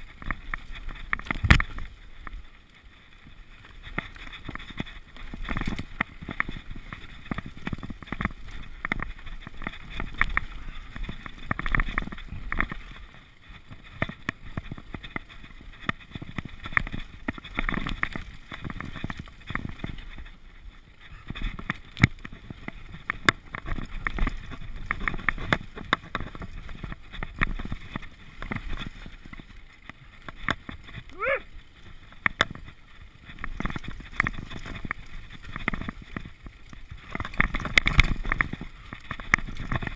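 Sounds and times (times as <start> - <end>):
bike rattling and knocking: 0.0 - 2.5, 3.2 - 39.9
bike tyres skidding over dirt: 0.0 - 39.9.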